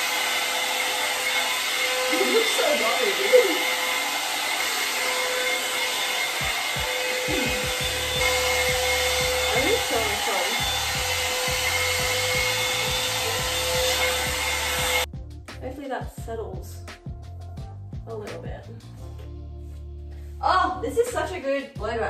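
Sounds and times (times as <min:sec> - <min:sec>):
hot-air dryer brush blowing: 0:00.0 - 0:15.1.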